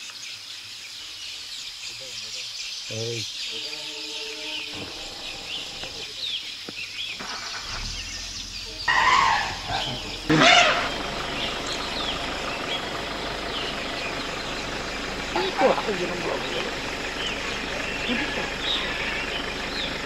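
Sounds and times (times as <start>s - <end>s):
elephant trumpeting: 3.5s - 6.1s, 7.2s - 20.0s.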